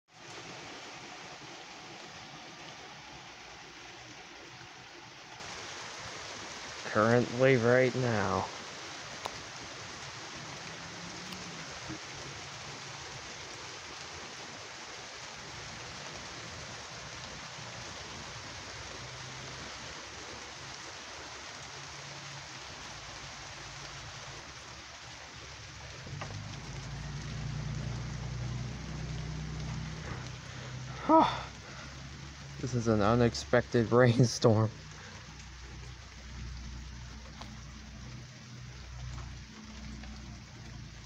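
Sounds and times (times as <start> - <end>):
heavy rain pouring: 0.1 - 41.0
low rumble: 25.8 - 32.6.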